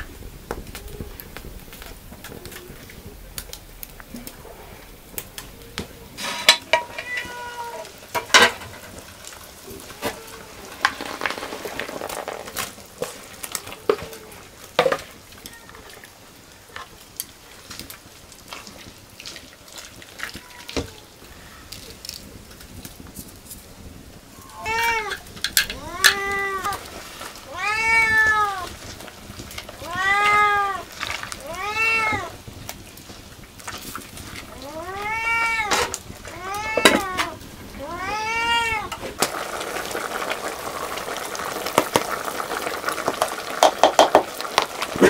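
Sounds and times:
cat meowing: 0:06.6 - 0:08.0, 0:20.2 - 0:21.2, 0:24.4 - 0:28.8, 0:29.7 - 0:32.4, 0:34.4 - 0:39.0.

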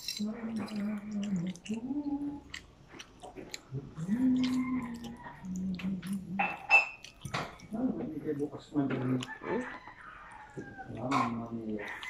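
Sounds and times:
wet mouth clicks: 0:00.0 - 0:07.8
child chewing and slurping noodles: 0:00.0 - 0:12.0.

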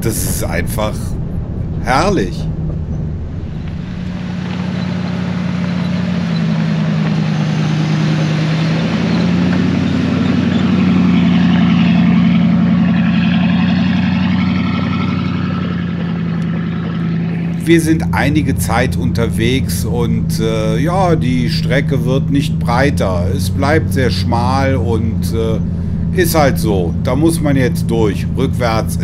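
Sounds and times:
pickup engine running: 0:00.0 - 0:29.0
tyres on gravel: 0:00.0 - 0:29.0.

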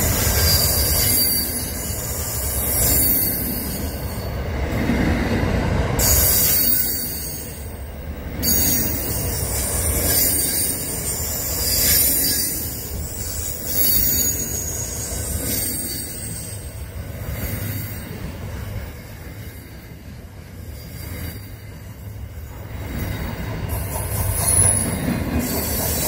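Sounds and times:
high hiss and squeal: 0:00.0 - 0:04.3, 0:06.0 - 0:07.7, 0:08.4 - 0:16.8
train wheels rumbling on rails: 0:00.0 - 0:26.0.

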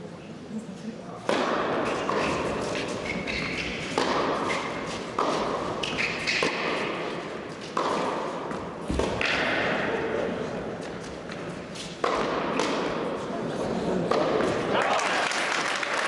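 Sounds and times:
tennis ball struck by rackets: 0:01.2 - 0:09.8, 0:12.0 - 0:13.0.

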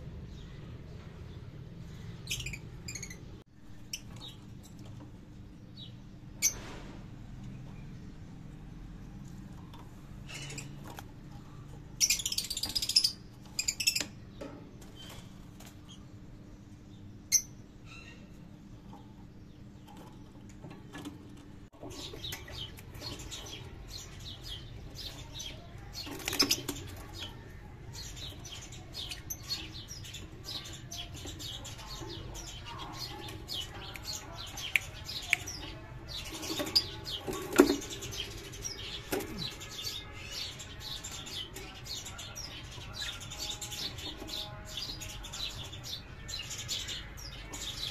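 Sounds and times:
lovebirds chirping: 0:21.8 - 0:47.9.

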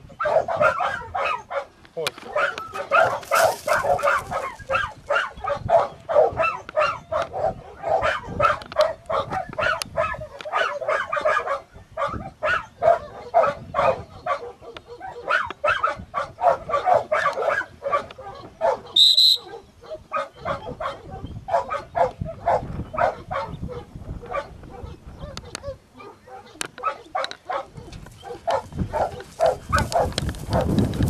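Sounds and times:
dogs barking rapidly: 0:00.0 - 0:31.0
short high whistle blast: 0:19.0 - 0:19.5.

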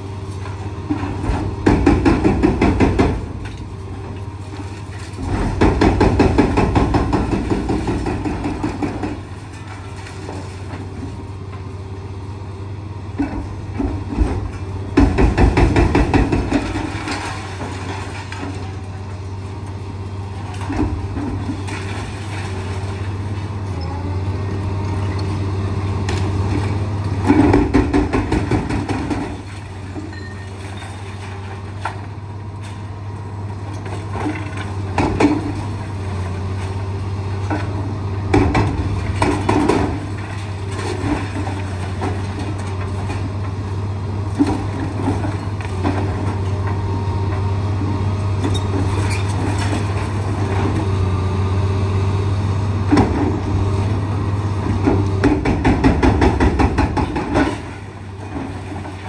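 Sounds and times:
excavator engine running: 0:00.0 - 0:59.0
hydraulic breaker hammering: 0:01.6 - 0:03.4, 0:05.3 - 0:09.3, 0:14.9 - 0:17.2, 0:54.8 - 0:57.8.

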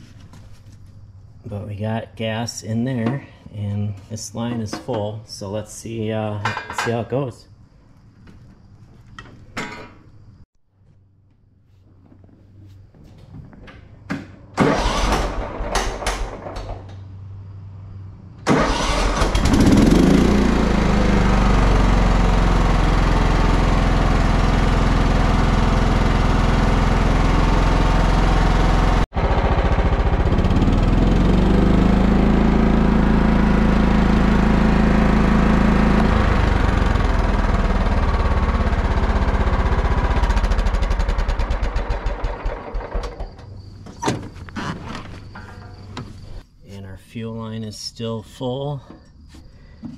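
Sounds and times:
mower engine cranking and starting: 0:13.7 - 0:17.0, 0:18.4 - 0:46.4.

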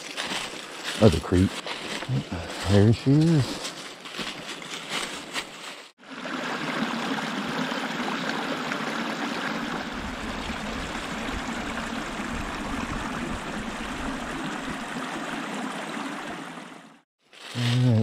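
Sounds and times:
creek babbling over rocks: 0:06.0 - 0:17.0.

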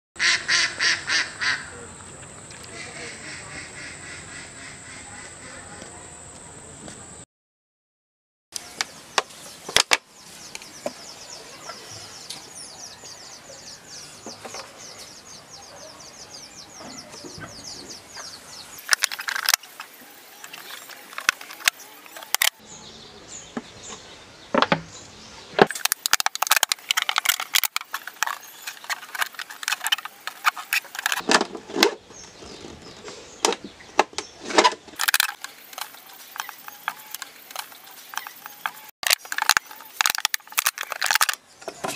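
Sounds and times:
plastic bottle crackling: 0:18.8 - 0:22.6, 0:25.6 - 0:31.9, 0:35.0 - 0:41.4.

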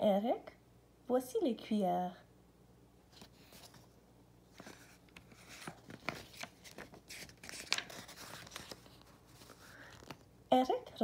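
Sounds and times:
paper page rustling and crinkling: 0:03.1 - 0:10.3.

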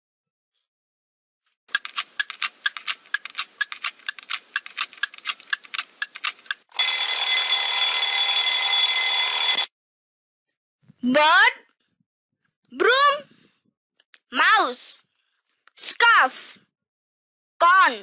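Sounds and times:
fast clock ticking: 0:01.7 - 0:07.0
alarm ringing: 0:06.7 - 0:09.7.

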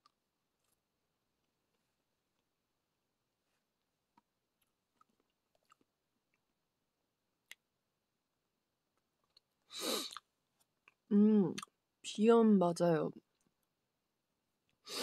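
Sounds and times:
quiet chewing: 0:00.0 - 0:02.6, 0:03.4 - 0:06.6, 0:08.9 - 0:11.7.

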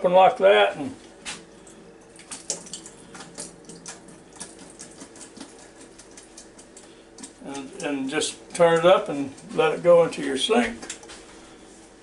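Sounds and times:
faint ticks and small splashes: 0:01.4 - 0:11.3
liquid dripping into sink: 0:01.6 - 0:07.9.

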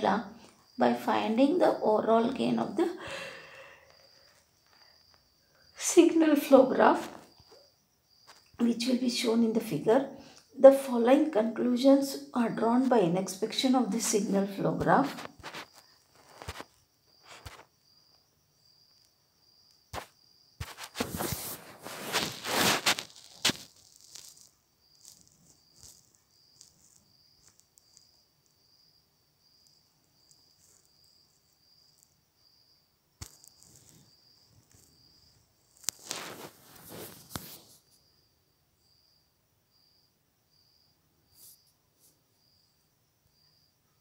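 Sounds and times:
cricket chirping: 0:00.0 - 0:44.0
rustling handling noise: 0:20.6 - 0:27.6, 0:35.7 - 0:37.8.

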